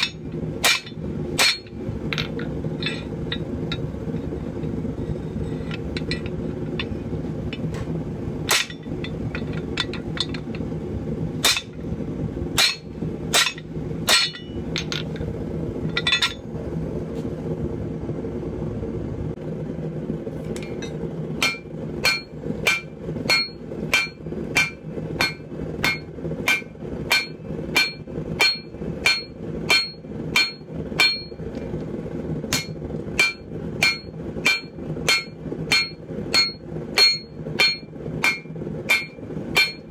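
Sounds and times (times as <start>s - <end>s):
hammer striking hot steel on anvil: 0.0s - 3.8s, 8.4s - 10.5s, 11.4s - 11.9s, 12.6s - 15.1s, 20.6s - 31.4s, 32.5s - 39.9s
steady low hum: 0.0s - 39.9s.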